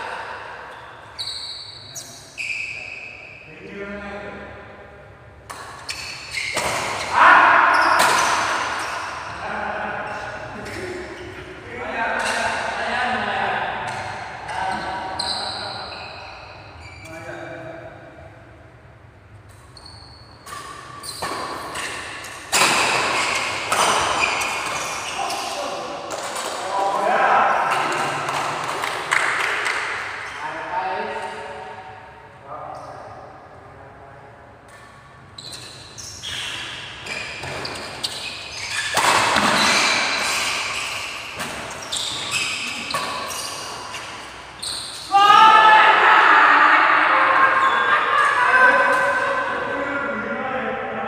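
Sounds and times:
shoes squeaking on tiled court: 0:00.7 - 0:03.5, 0:05.5 - 0:09.3, 0:13.9 - 0:17.2, 0:19.5 - 0:26.7, 0:30.2 - 0:30.4, 0:34.7 - 0:45.1.

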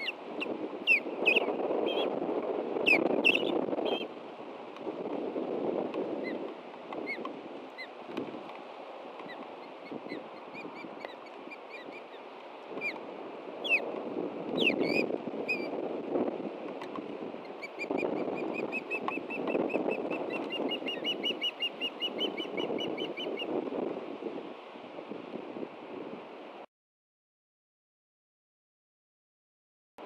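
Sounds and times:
juvenile ospreys calling: 0:00.0 - 0:02.2, 0:02.8 - 0:04.1, 0:06.2 - 0:08.0, 0:09.2 - 0:13.0, 0:13.6 - 0:13.9, 0:14.6 - 0:15.8, 0:17.4 - 0:23.6
wind on microphone: 0:00.0 - 0:26.7.

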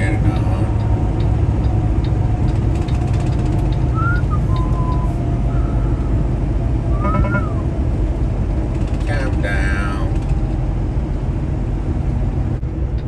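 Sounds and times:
truck engine and road noise: 0:00.0 - 0:13.0
faint whistle-like tones: 0:04.0 - 0:06.2, 0:06.9 - 0:07.7.

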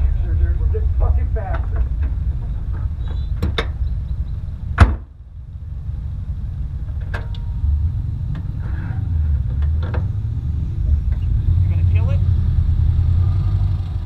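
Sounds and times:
low rumble: 0:00.0 - 0:14.0
car door slamming: 0:04.7 - 0:05.2.

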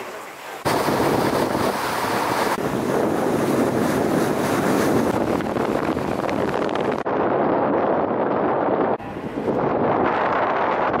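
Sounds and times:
water rushing past boat hull: 0:00.0 - 0:07.2
wind blowing across microphone: 0:00.6 - 0:11.0.

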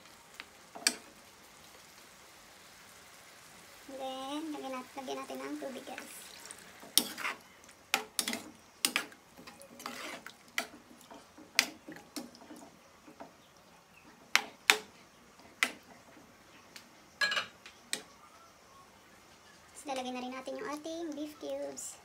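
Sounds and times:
spatula scraping frying pan: 0:04.6 - 0:12.7.

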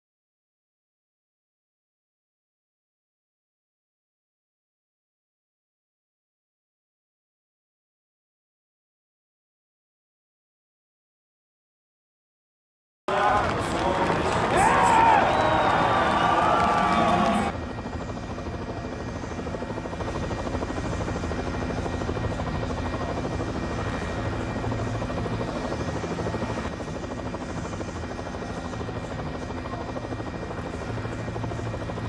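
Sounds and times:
helicopter rotor and engine: 0:13.1 - 0:32.0.

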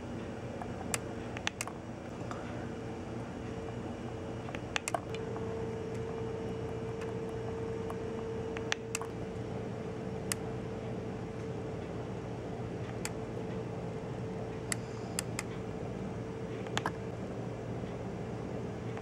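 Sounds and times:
steady machine hum: 0:00.0 - 0:19.0
sharp clicks: 0:00.8 - 0:01.8, 0:04.5 - 0:09.1.

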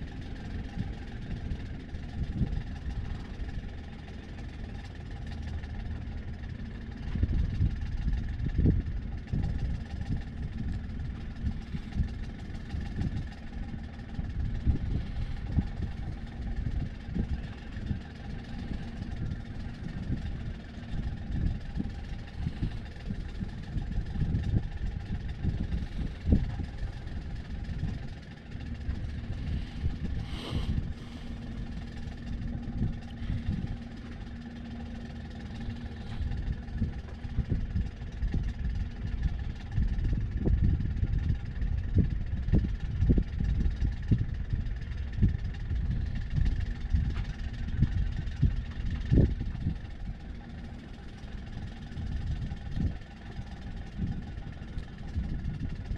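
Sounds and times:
boat engine droning: 0:00.0 - 0:55.9
wind on microphone: 0:00.0 - 0:55.9.

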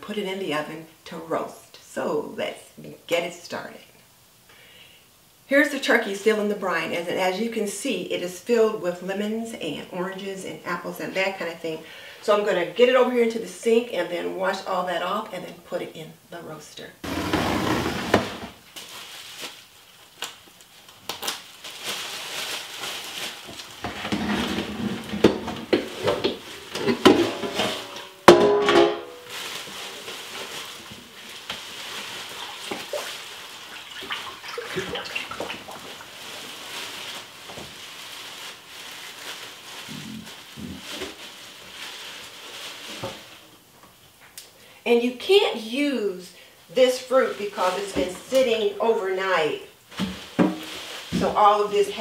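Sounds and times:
knocks and clatter in sink: 0:23.9 - 0:29.1
water splashing: 0:31.8 - 0:36.6.

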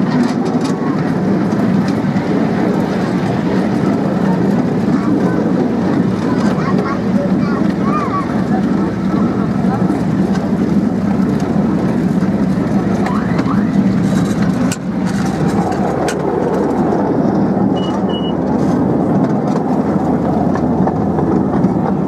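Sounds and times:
miniature train rumbling on track: 0:00.0 - 0:22.0
short high beeps: 0:17.8 - 0:18.4.

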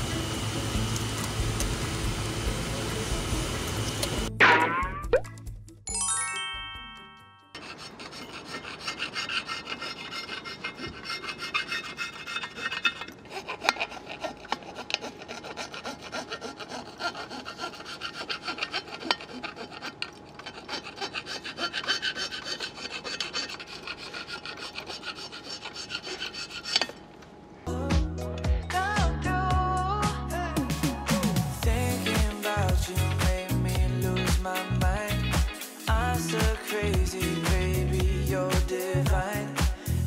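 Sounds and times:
metal scraper rasping on aluminium: 0:07.6 - 0:27.1.

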